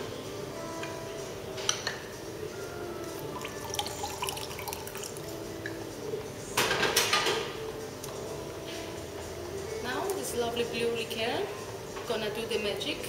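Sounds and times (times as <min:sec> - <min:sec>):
juice dripping into glass: 0:03.2 - 0:05.8.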